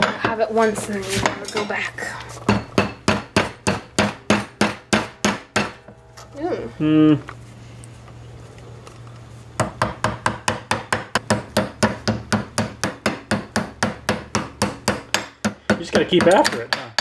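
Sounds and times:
hammer tapping on metal: 2.5 - 6.0, 9.6 - 17.0.

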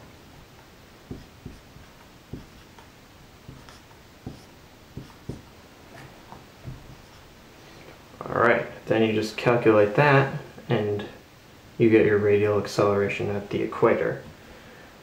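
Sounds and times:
marker writing on a whiteboard: 1.1 - 2.9, 3.5 - 7.3.

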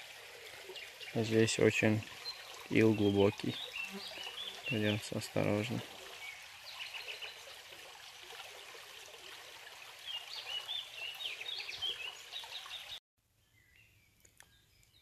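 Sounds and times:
forest stream trickling: 0.0 - 13.0
bird chirping: 10.1 - 15.0.

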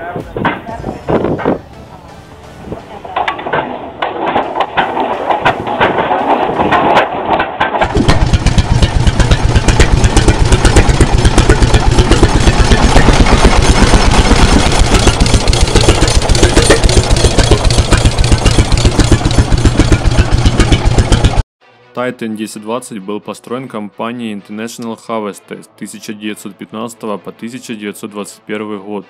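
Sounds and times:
engine running with fast exhaust beat: 2.6 - 21.4.

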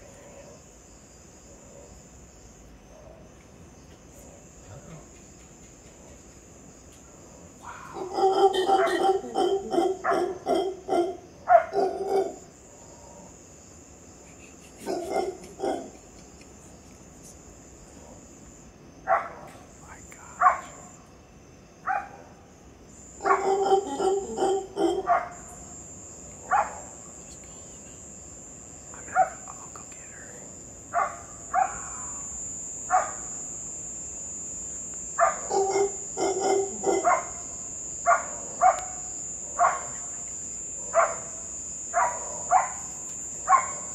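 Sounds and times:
high-pitched insect trill: 0.0 - 43.9
animal barking calls: 7.6 - 12.5, 14.8 - 16.1, 23.2 - 25.5, 29.1 - 29.5, 30.9 - 32.2, 35.2 - 40.1, 40.9 - 43.9.

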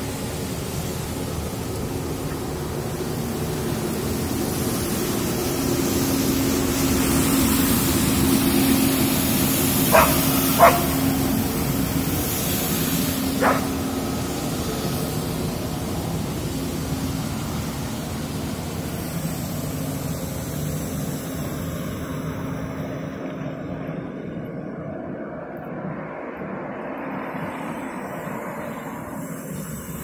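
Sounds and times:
vehicle engine drone: 0.0 - 30.0
dog barking: 9.9 - 11.1, 13.4 - 13.8.

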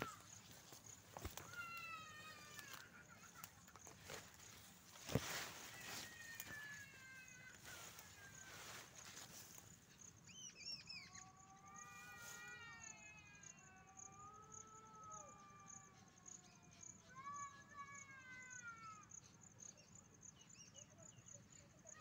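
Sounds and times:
insect chirring: 0.0 - 12.2.

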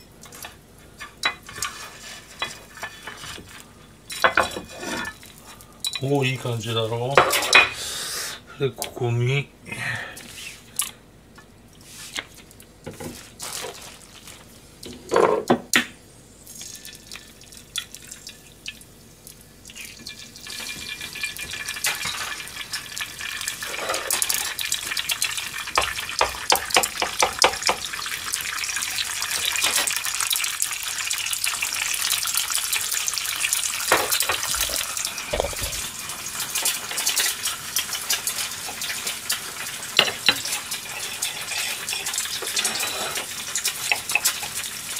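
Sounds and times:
egg sizzling in frying pan: 16.0 - 44.9.

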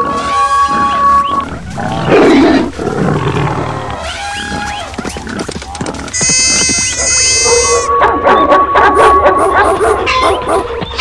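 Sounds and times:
loud animal roar: 0.0 - 7.9
animal cries: 6.1 - 8.5.

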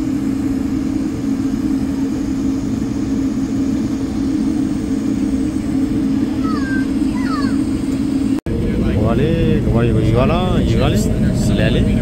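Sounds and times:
airliner cabin hum: 0.0 - 12.0.

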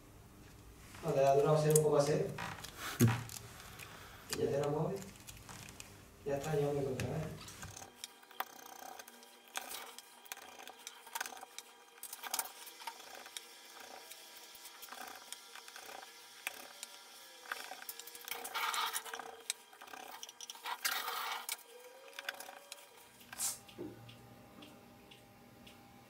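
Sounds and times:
short hissing bursts: 23.3 - 23.7.

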